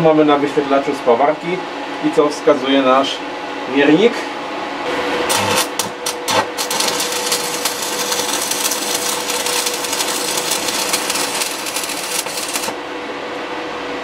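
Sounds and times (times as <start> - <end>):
welding arc crackling and hissing: 5.3 - 12.8.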